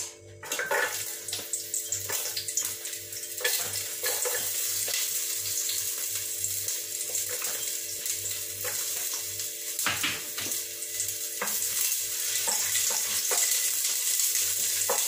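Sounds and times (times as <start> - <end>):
garlic and onion sizzling in oil: 0.4 - 15.0.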